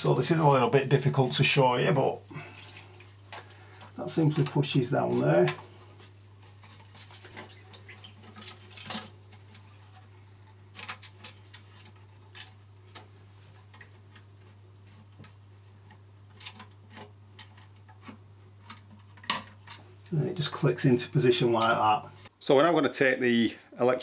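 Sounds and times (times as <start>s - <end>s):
plastic parts clicking and knocking: 8.2s - 9.6s, 10.7s - 13.1s, 15.2s - 19.9s.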